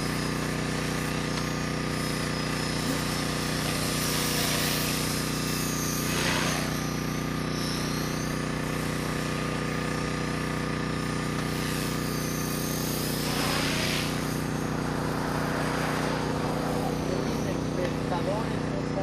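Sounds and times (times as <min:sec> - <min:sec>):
rc helicopter whine: 0:00.0 - 0:19.0
rotor whooshes: 0:11.6 - 0:18.2.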